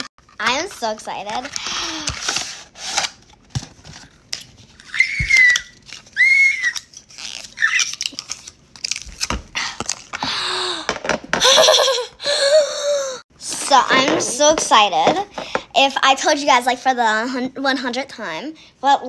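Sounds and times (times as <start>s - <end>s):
girl squealing: 4.8s - 6.9s, 7.5s - 8.0s.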